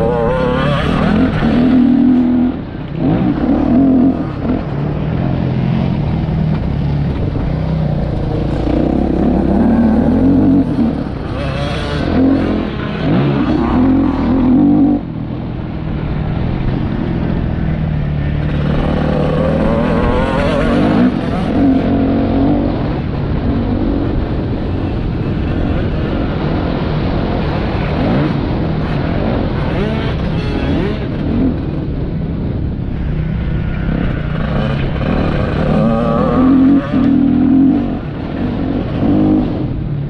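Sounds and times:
motocross bike engine revving: 0.0 - 4.8, 8.0 - 15.1, 18.2 - 23.1, 27.4 - 31.7, 33.8 - 39.6.

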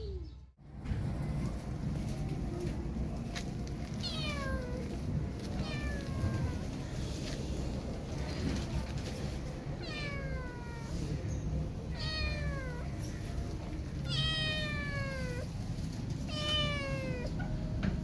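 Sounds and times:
kitten meowing: 4.0 - 4.8, 5.6 - 6.6, 9.8 - 11.0, 11.9 - 13.0, 14.0 - 15.5, 16.3 - 17.4.

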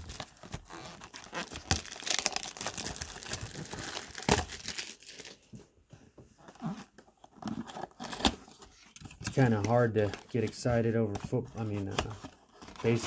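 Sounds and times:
wrapping crinkling and tearing: 0.0 - 5.5, 11.6 - 13.0.

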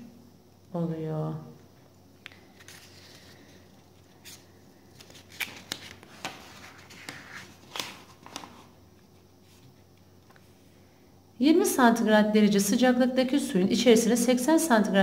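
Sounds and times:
paper rustling and crackling: 2.3 - 8.8.

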